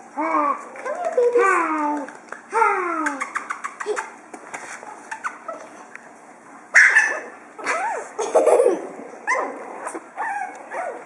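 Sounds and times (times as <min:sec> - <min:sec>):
puppies yipping and barking: 0:06.7 - 0:08.2, 0:09.2 - 0:11.0.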